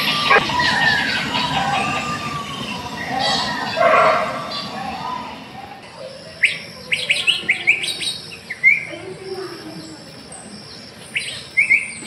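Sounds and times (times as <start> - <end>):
bird calls through speaker: 0.0 - 8.0.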